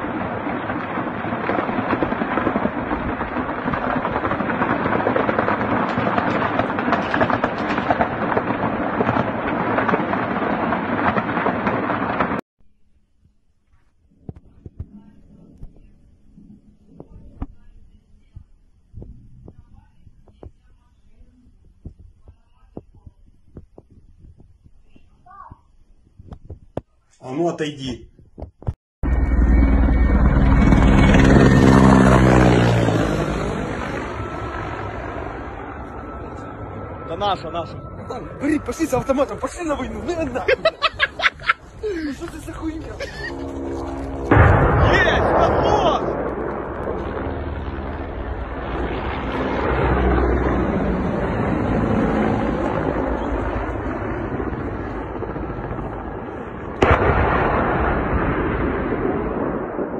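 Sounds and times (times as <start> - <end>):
helicopter rotor and engine drone: 29.0 - 41.6, 42.4 - 44.6, 46.2 - 57.0
loud sharp bang: 42.5 - 49.4, 56.8 - 59.9.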